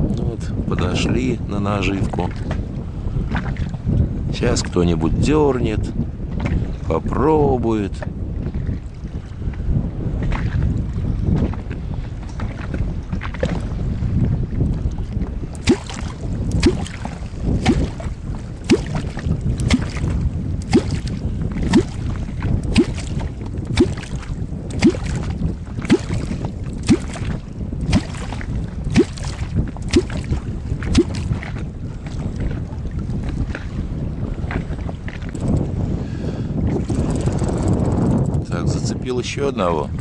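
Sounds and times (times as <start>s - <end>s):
wind noise on microphone: 0.0s - 40.0s
deep bloop in water: 9.8s - 35.8s, 36.5s - 38.7s.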